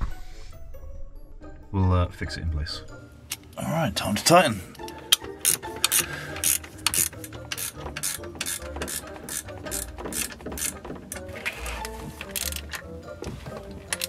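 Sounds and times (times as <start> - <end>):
ratchet wrench clicking: 4.8 - 12.8.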